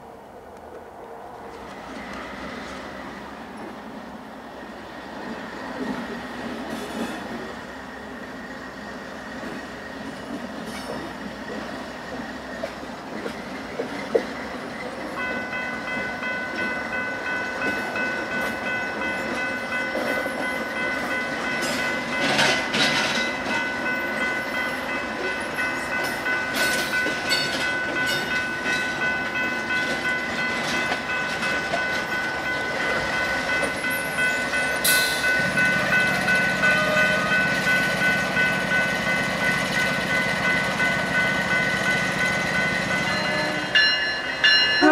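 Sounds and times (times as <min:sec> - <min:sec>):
diesel locomotive engines running: 0:00.0 - 0:44.9
high-pitched train squeal: 0:42.7 - 0:44.9.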